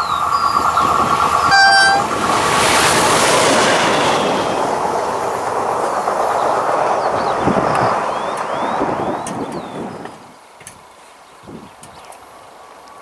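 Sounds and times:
train wheel and rail rush: 0.0s - 13.0s
locomotive horn blast: 1.4s - 2.3s.

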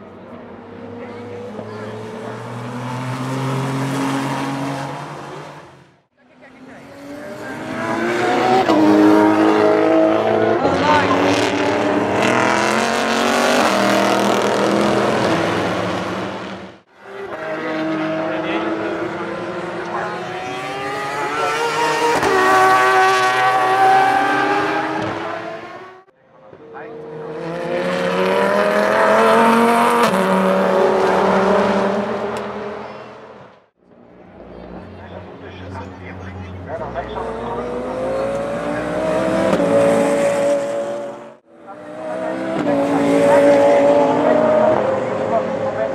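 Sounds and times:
race car engines accelerating: 0.0s - 45.9s.

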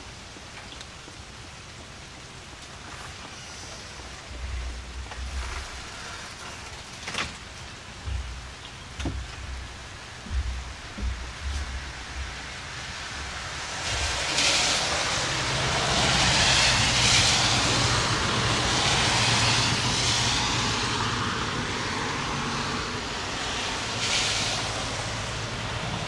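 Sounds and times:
steady rain: 0.0s - 26.0s
tyres hissing through water: 0.8s - 26.0s
low engine hum: 3.7s - 14.2s.

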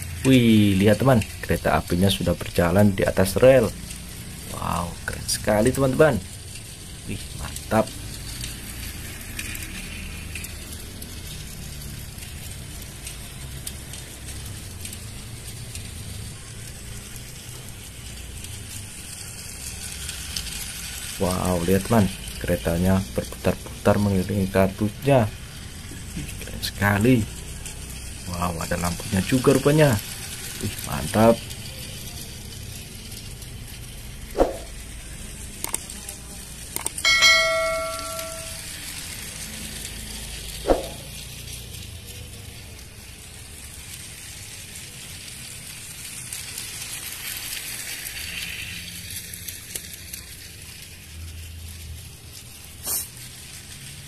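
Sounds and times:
toy train motor whirring: 0.0s - 54.0s
clicks and bell-like ding: 36.8s - 38.7s.

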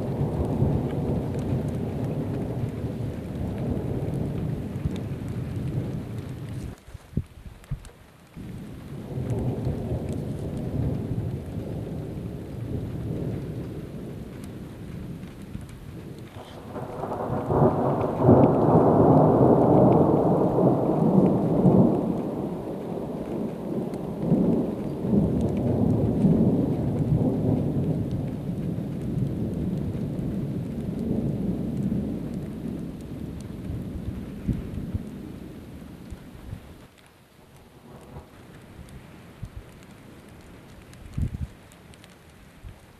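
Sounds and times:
thunder rumbling: 0.0s - 6.8s, 8.3s - 36.8s, 37.6s - 42.9s
rain: 0.0s - 42.9s.

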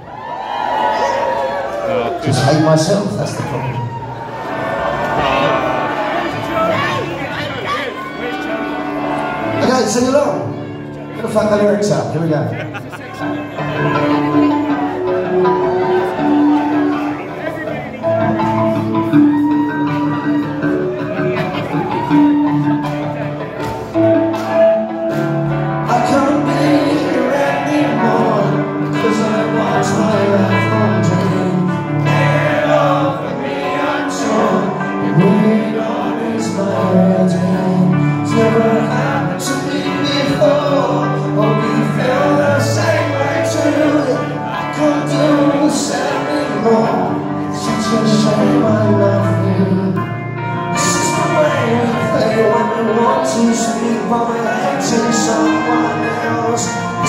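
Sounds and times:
electric guitars: 0.0s - 57.0s
drums: 17.7s - 46.2s
man singing: 25.8s - 57.0s.

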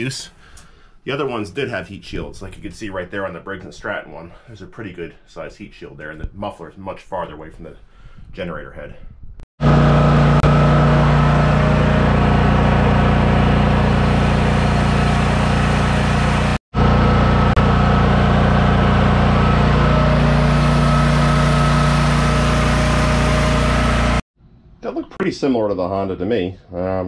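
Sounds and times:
generator engine running: 9.6s - 24.2s.

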